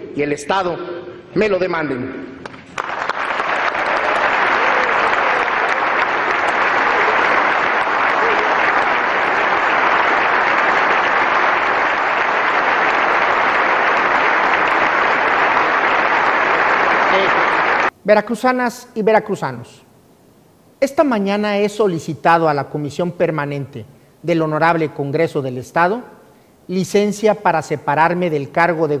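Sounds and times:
audience applauding: 2.4 - 17.9.

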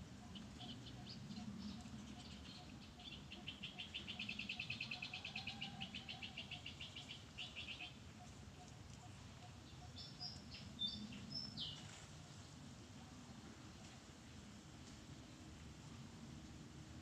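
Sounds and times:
bird chirping: 0.2 - 12.0.

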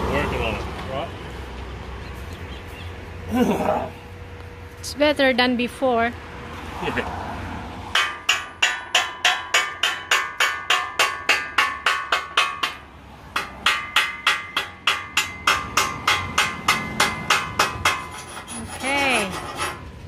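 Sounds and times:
chipping hammer tapping metal: 8.0 - 12.8, 13.4 - 19.6.

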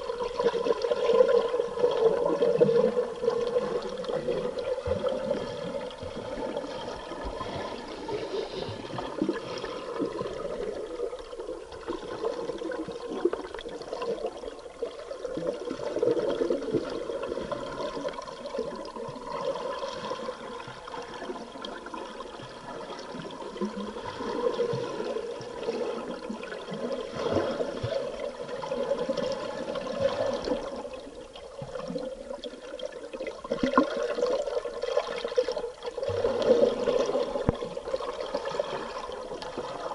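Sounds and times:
underwater bubbling: 0.0 - 39.9.

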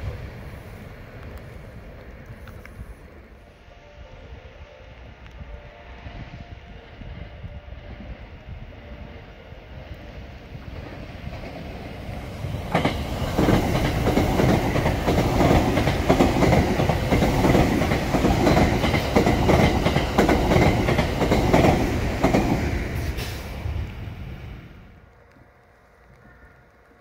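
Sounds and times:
electric train rumbling past: 0.0 - 27.0
train wheels clattering: 10.7 - 23.8.

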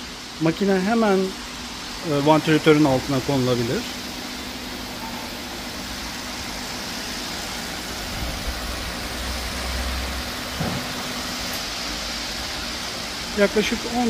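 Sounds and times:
pedestal fan humming: 0.0 - 14.0.

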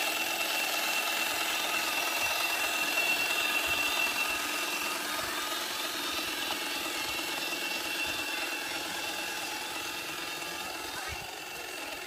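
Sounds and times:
electric motors whining: 0.0 - 12.0.

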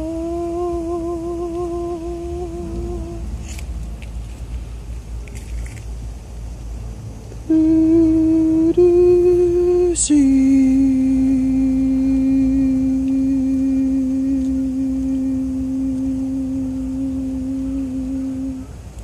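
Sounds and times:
man humming: 0.0 - 3.3, 7.5 - 18.7
low rumble: 0.0 - 18.6.

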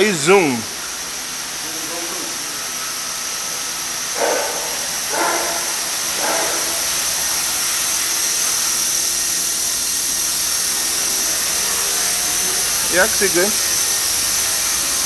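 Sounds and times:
model helicopter motor whining: 8.2 - 15.0.

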